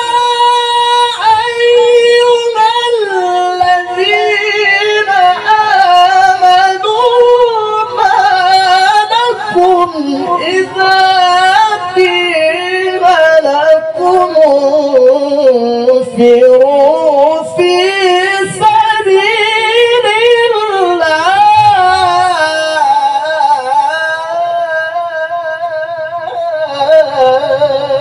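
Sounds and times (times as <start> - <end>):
man reciting melodically: 0.0 - 28.0.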